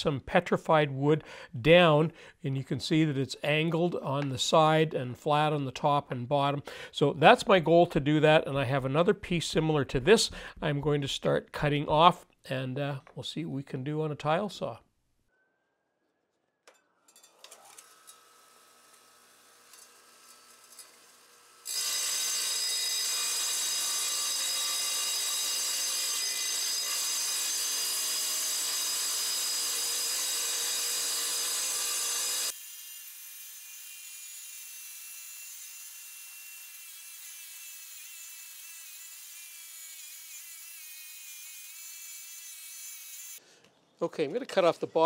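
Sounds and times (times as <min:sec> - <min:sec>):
tile saw motor whine: 0:17.4 - 0:43.4
saw blade grinding through stone: 0:18.1 - 0:43.4.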